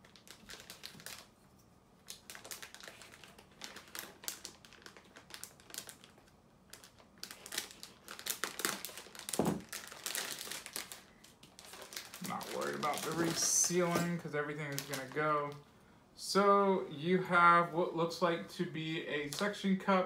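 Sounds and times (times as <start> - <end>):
plastic bag crinkling: 0.0 - 15.6.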